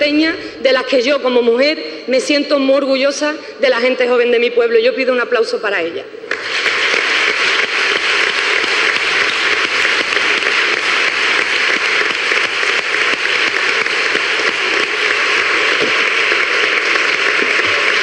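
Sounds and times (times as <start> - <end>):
crowd clapping: 6.3 - 18.0.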